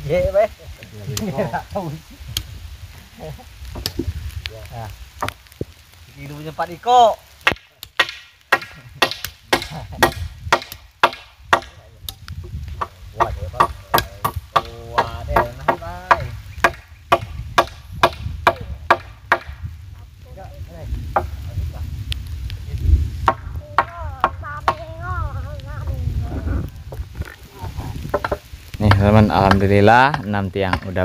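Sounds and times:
tools knocking on timber: 0:28.1 - 0:31.0.

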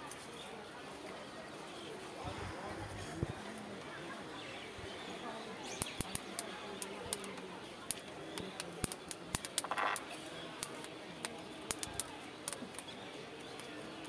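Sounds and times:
corn crackling and popping: 0:05.7 - 0:14.0.

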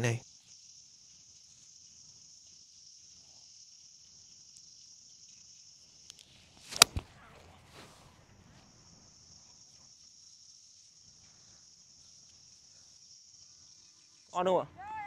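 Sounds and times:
insects chirring: 0:00.0 - 0:15.0
golf club swish: 0:06.6 - 0:08.1
golf ball struck with crack: 0:06.6 - 0:08.2.

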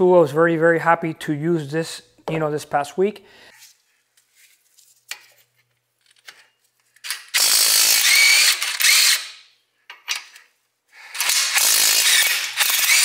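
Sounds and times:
cordless impact wrench running: 0:07.2 - 0:09.4, 0:11.0 - 0:13.0.

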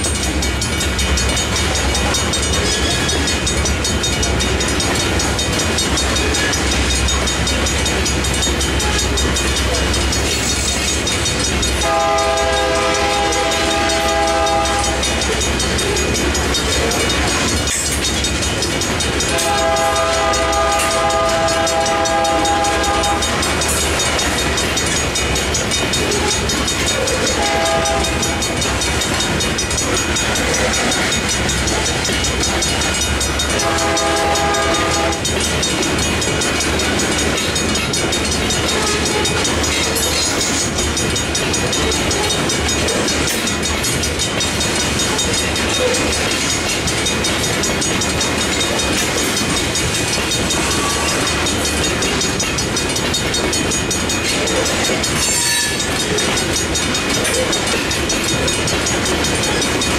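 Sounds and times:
train wheels clattering on rails: 0:00.0 - 0:59.9
distant locomotive horn: 0:11.8 - 0:15.2, 0:19.3 - 0:23.4, 0:27.3 - 0:28.4, 0:33.5 - 0:35.3.

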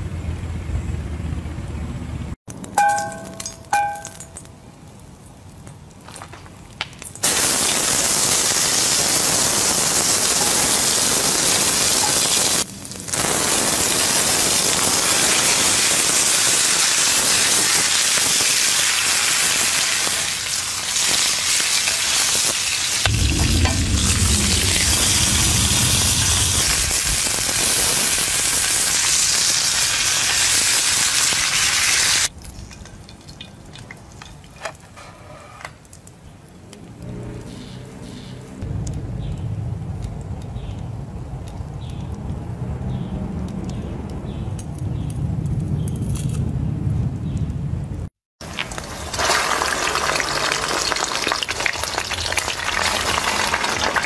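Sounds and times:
steak sizzling in a skillet: 0:07.2 - 0:23.1, 0:24.6 - 0:32.3
low rumble: 0:23.0 - 0:28.2, 0:38.6 - 0:44.2.

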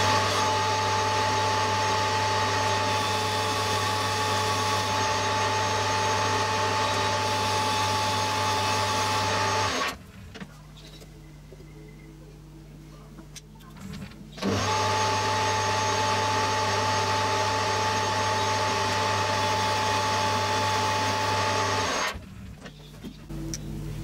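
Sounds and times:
metal lathe humming and whining: 0:00.0 - 0:10.0, 0:14.4 - 0:22.2.

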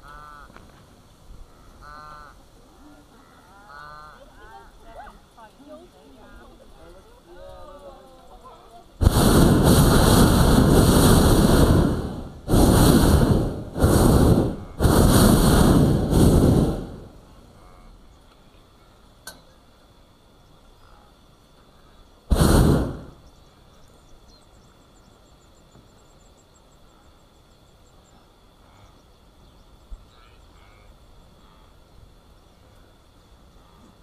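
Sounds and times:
propane burner blast: 0:09.0 - 0:17.4, 0:22.3 - 0:23.3.

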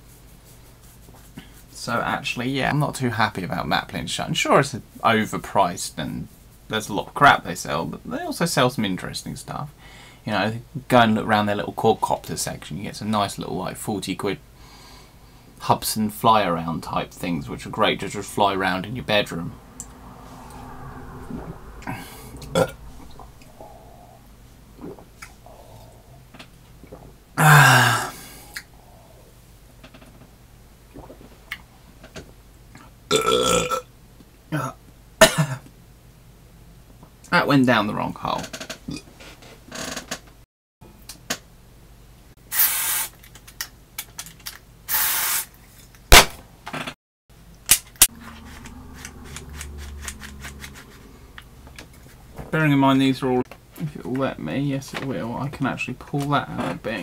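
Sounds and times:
loud burp: 0:21.8 - 0:24.2, 0:27.4 - 0:28.3, 0:33.1 - 0:33.9
sipping and swallowing: 0:21.8 - 0:27.9, 0:30.9 - 0:31.7
aerosol spray can hissing: 0:44.9 - 0:45.5.

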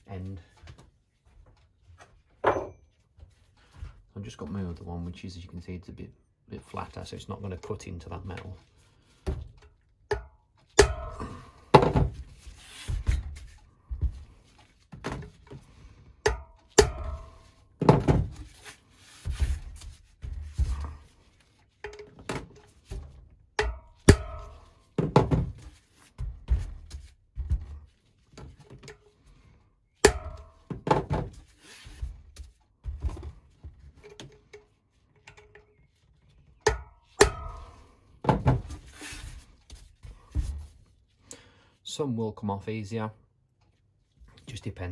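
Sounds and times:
hammer striking metal chisel: 0:16.2 - 0:17.6, 0:30.0 - 0:30.8, 0:36.7 - 0:37.9.

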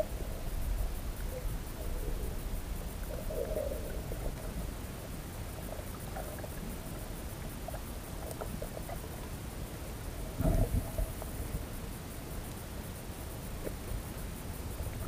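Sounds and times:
muffled underwater rumble: 0:00.0 - 0:12.0
faint clicks: 0:05.5 - 0:09.3, 0:13.6 - 0:14.0.

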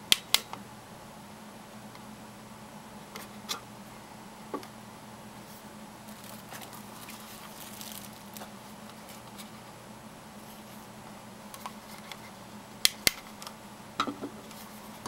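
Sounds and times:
steady low hum: 0:00.0 - 0:15.0
scratchy rustling: 0:05.4 - 0:09.6.

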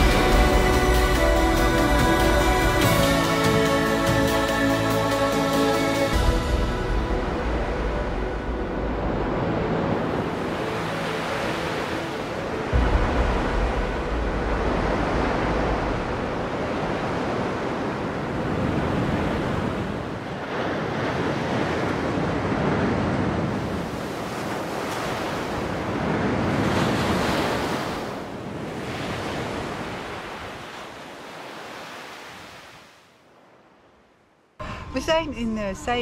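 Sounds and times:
waves washing on sandy beach: 0:07.0 - 0:33.1
wind rumble on microphone: 0:12.7 - 0:30.6.

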